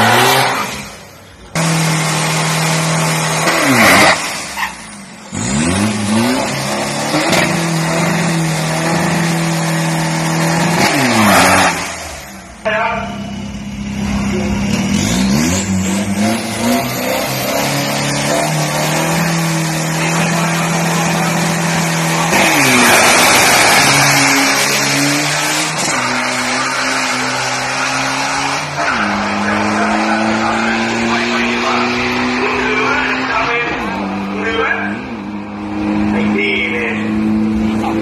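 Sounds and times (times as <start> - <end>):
diesel engine revving: 0.0 - 38.0
tyre squeal: 4.5 - 5.1.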